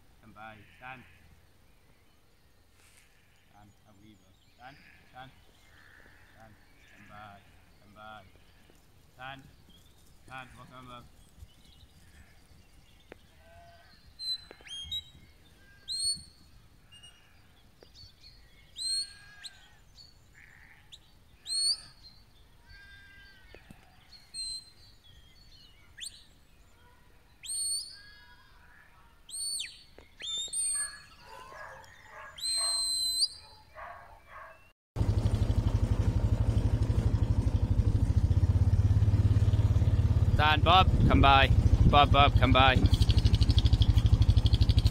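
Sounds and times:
shepherd's whistle commands: 15.9s - 16.4s, 21.5s - 22.0s, 27.4s - 28.0s, 29.3s - 31.5s, 32.2s - 33.6s.

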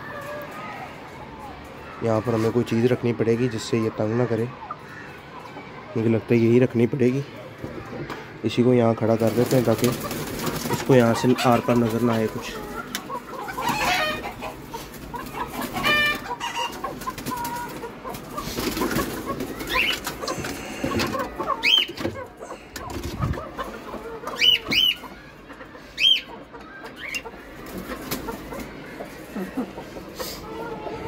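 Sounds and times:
chickens clucking: 0.0s - 31.0s
chicken high calls: 9.5s - 31.0s.

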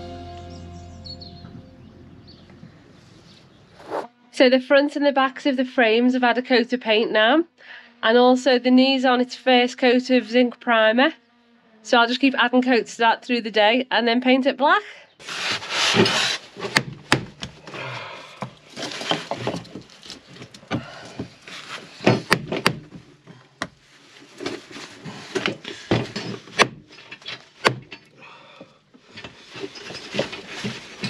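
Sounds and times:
nail scraping and creaking in wood: 15.2s - 17.8s, 18.4s - 23.1s, 24.3s - 28.2s, 29.0s - 31.0s.

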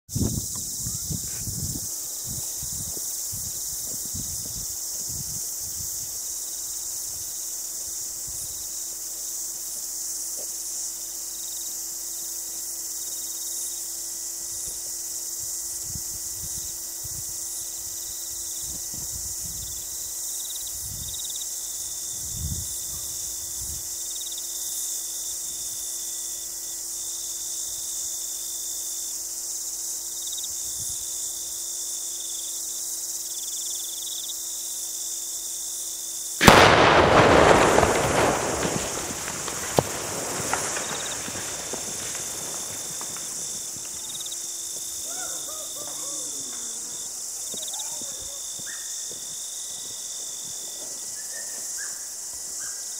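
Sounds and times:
wind buffeting microphone: 0.1s - 6.3s, 22.0s - 24.0s, 36.4s - 44.2s
insects chorus: 0.1s - 52.9s.

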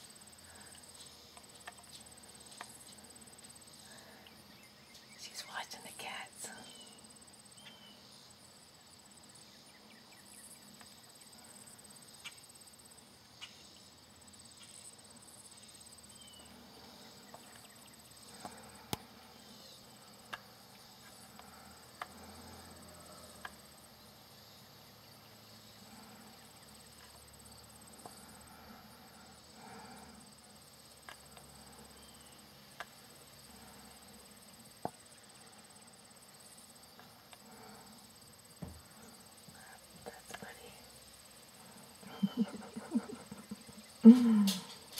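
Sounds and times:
insects trilling: 0.0s - 44.9s
faint clicks and ticks: 20.2s - 22.3s, 23.3s - 23.6s.

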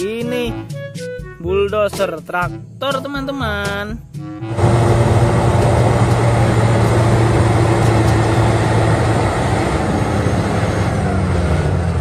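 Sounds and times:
bulldozer diesel engine running: 4.4s - 12.0s.

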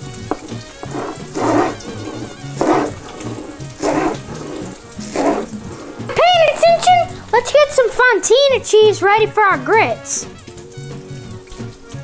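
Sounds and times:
knife chopping on wooden board: 0.0s - 6.1s
background music: 0.0s - 12.0s.

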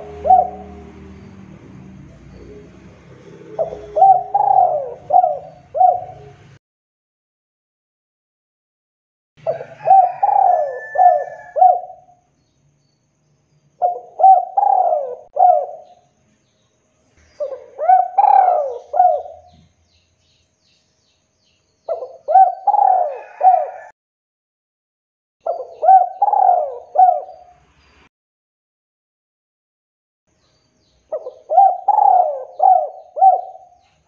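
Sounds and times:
dove cooing: 0.0s - 1.3s, 2.1s - 6.6s, 9.4s - 12.2s, 13.8s - 16.0s, 17.4s - 19.6s, 21.9s - 23.9s, 25.4s - 27.5s, 31.1s - 33.8s.

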